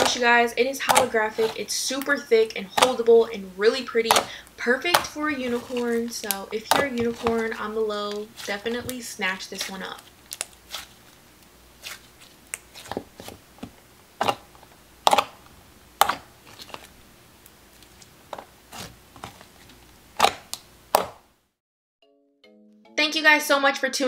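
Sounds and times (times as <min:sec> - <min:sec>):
slime squished by hand: 0:08.1 - 0:11.1, 0:11.8 - 0:13.4.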